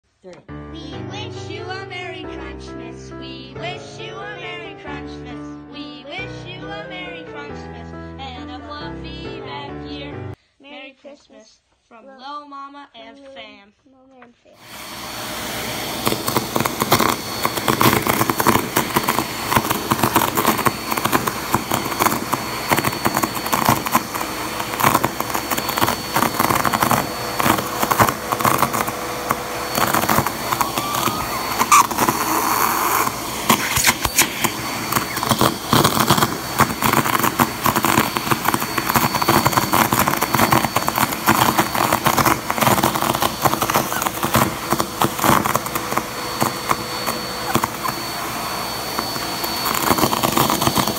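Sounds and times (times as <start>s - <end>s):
vacuum cleaner running: 14.6s - 50.9s.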